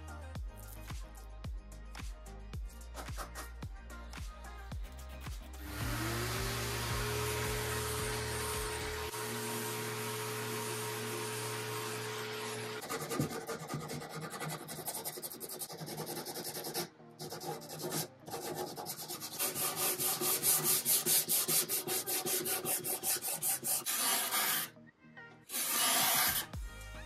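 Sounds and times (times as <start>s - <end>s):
sander hum: 5.6s - 12.8s
sanding sponge rubbing wood: 12.8s - 24.7s
card scraper scraping veneer: 18.5s - 24.7s, 25.5s - 26.5s.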